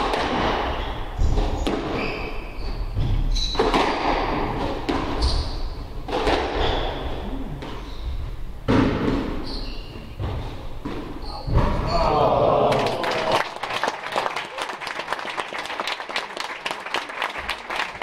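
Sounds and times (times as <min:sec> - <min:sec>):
squash ball struck by rackets: 0:00.0 - 0:02.2, 0:02.9 - 0:07.7, 0:08.7 - 0:09.5.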